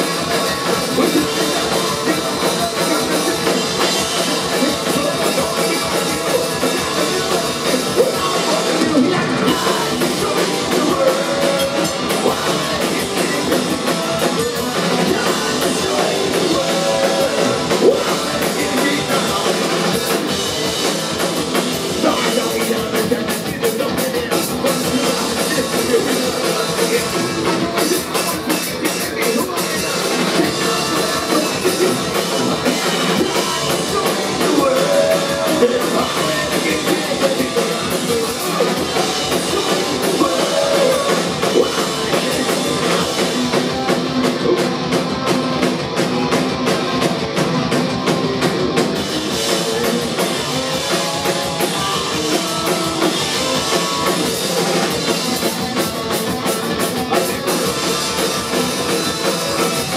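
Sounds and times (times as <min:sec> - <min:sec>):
person singing into a microphone: 0:00.0 - 0:44.8
bass guitar: 0:00.0 - 0:59.9
drum kit: 0:00.0 - 0:59.9
electric guitar: 0:00.0 - 0:59.9.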